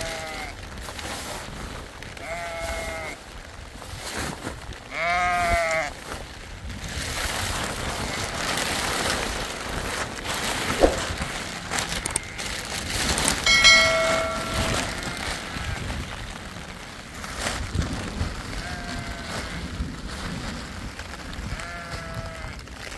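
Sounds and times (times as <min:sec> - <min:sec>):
sheep bleating: 0:00.0 - 0:00.6, 0:02.2 - 0:03.2, 0:04.9 - 0:05.9, 0:21.5 - 0:22.6
plastic sheeting rustling: 0:00.0 - 0:02.2, 0:03.2 - 0:04.9, 0:05.9 - 0:22.9.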